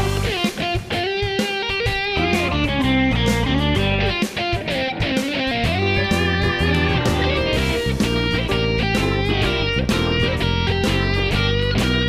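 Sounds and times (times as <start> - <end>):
rock music with electric guitar: 0.0 - 12.0.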